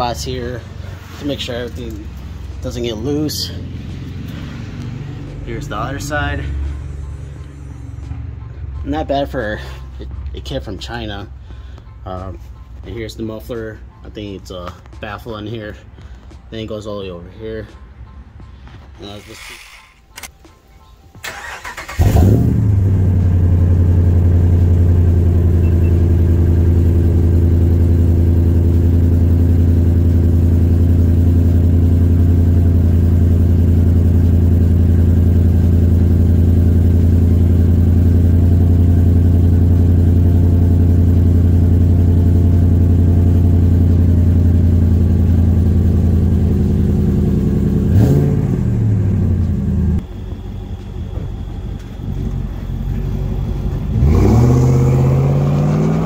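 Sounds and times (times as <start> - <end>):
truck engine starting and idling: 21.2 - 56.0.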